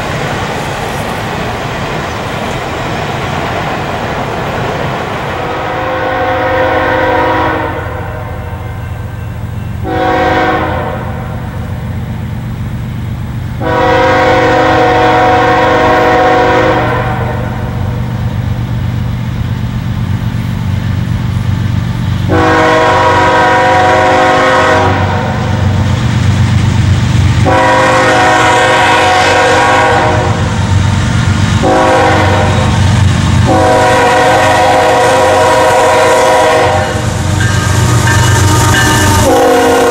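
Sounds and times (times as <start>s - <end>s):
train engines rumbling: 0.0s - 39.9s
locomotive horn blasts: 5.4s - 11.4s, 13.6s - 17.8s, 22.3s - 25.6s, 27.4s - 30.5s, 31.6s - 32.8s, 33.4s - 39.9s.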